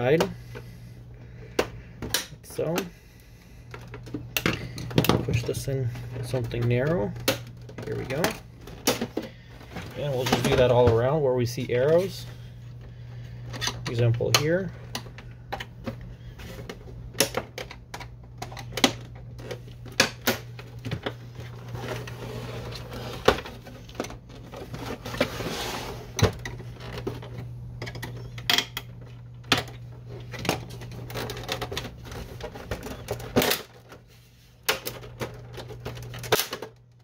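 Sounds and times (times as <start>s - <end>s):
plastic scraping: 18.4s - 28.4s, 29.0s - 36.7s.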